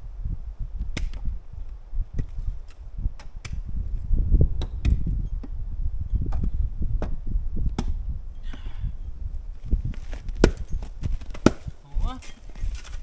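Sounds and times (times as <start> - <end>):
axe chopping firewood: 0.9 - 1.2, 4.6 - 5.6, 6.3 - 8.7, 10.2 - 11.8.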